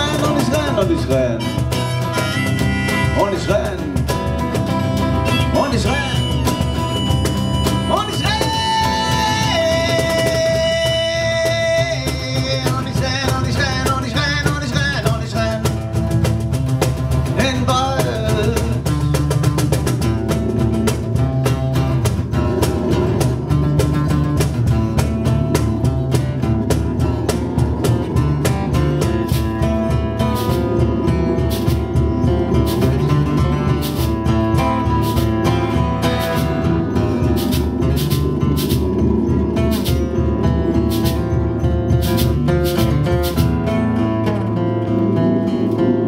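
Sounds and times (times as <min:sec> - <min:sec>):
congas and bongos: 0:00.0 - 0:46.0
strummed acoustic guitar: 0:00.0 - 0:46.0
wordless vocal singing: 0:08.0 - 0:15.7.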